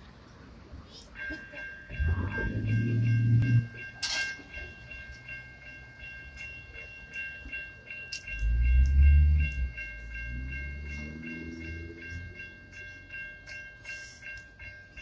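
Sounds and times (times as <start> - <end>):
electronic crossing bells ringing: 1.1 - 15.0
passing vehicle rumble: 1.9 - 3.8, 8.3 - 13.1.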